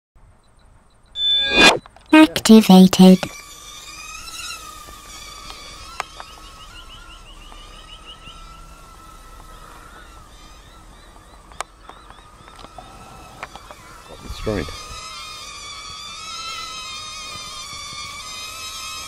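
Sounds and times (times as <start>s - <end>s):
small drone motors whining: 1.2s - 1.8s, 3.2s - 19.0s.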